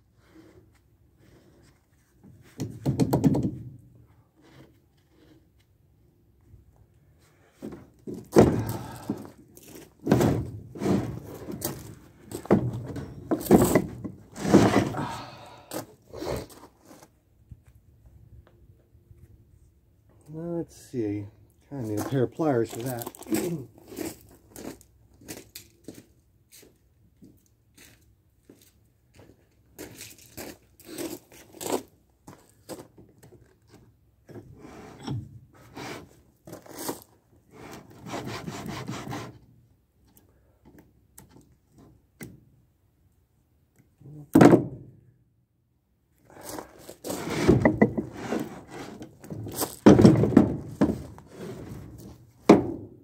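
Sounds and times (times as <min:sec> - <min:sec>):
heavy vise scraping on wood: 0:12.9 - 0:15.2, 0:47.1 - 0:49.1.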